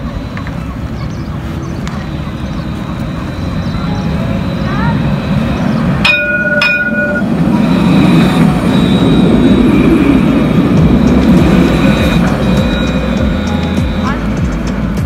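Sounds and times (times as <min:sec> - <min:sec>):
tram wheels on rails: 0:00.0 - 0:15.0
thin high whine: 0:02.0 - 0:15.0
tram bell ringing: 0:02.0 - 0:15.0.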